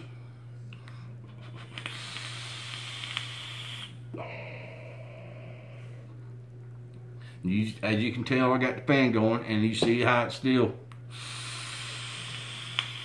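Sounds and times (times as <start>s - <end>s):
airflow hissing through atomizer: 0.8s - 4.3s, 11.0s - 13.0s
breathy exhale: 1.8s - 6.0s, 11.1s - 13.0s.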